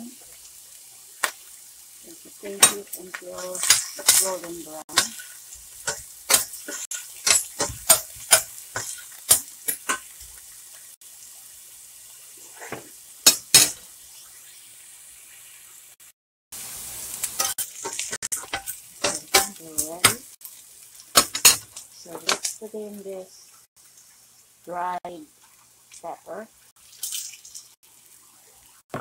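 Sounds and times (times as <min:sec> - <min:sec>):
onion sizzling in oil: 0:00.0 - 0:29.0
spoon scraping a pan: 0:02.5 - 0:10.4, 0:12.6 - 0:13.8, 0:17.3 - 0:20.3, 0:21.2 - 0:22.6.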